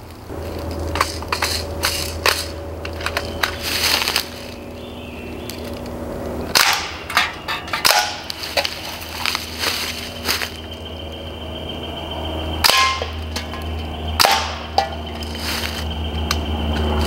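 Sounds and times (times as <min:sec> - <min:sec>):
air rifle shots: 0:06.5 - 0:07.1, 0:14.2 - 0:14.7.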